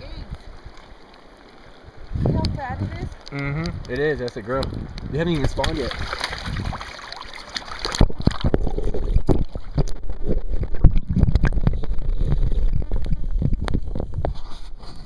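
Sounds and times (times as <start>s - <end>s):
wind buffeting microphone: 1.9s - 6.9s, 7.9s - 14.6s.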